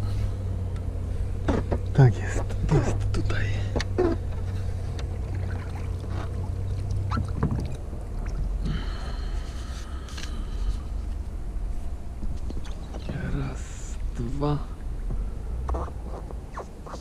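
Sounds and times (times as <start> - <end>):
low hum: 0.0 - 17.0
pole knocking and splashing water: 5.1 - 8.4.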